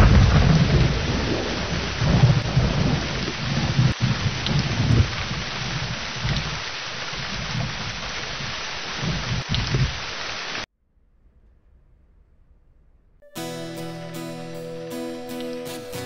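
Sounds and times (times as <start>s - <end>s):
thunder rumbling: 0.0s - 6.6s
heavy rain falling: 0.0s - 10.7s.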